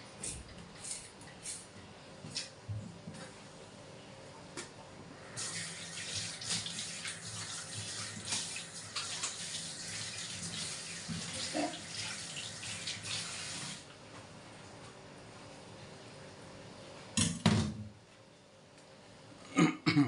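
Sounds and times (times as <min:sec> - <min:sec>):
water running into a sink: 0:05.4 - 0:13.8.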